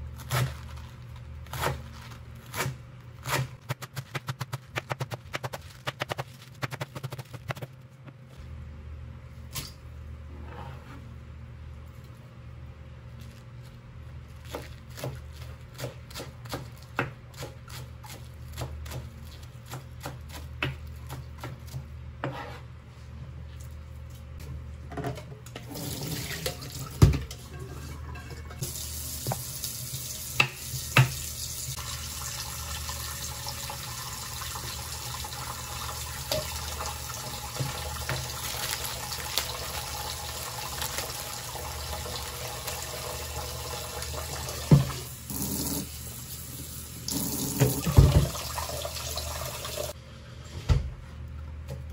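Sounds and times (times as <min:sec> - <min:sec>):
knife on plastic cutting board: 0:22.2 - 0:22.7
tap water running into sink: 0:47.1 - 0:49.9.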